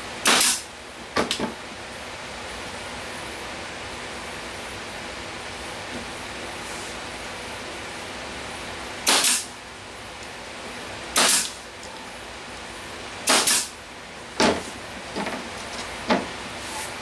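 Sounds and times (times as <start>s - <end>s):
nail gun firing: 0.2s - 0.6s, 9.0s - 9.5s, 11.2s - 11.6s, 13.2s - 13.7s.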